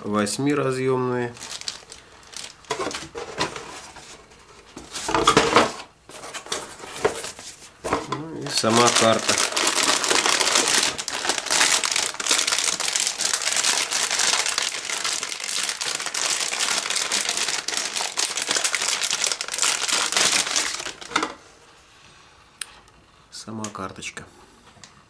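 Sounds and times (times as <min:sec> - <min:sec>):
plastic bag crinkling: 0:00.8 - 0:04.0, 0:08.4 - 0:21.3.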